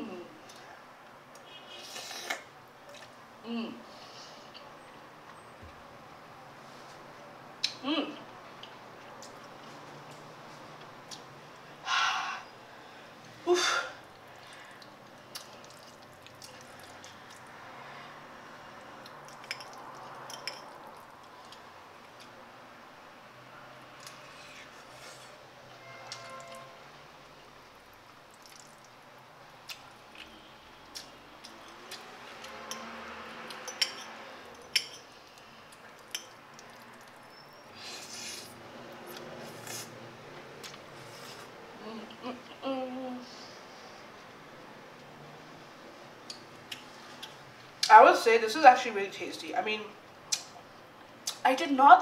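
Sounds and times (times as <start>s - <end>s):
fork clinking on ceramic plate: 33.6s - 35.1s.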